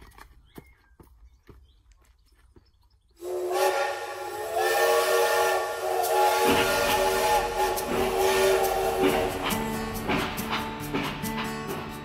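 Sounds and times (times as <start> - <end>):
steam locomotive whistle: 3.2 - 10.6
steam hissing: 3.2 - 12.0.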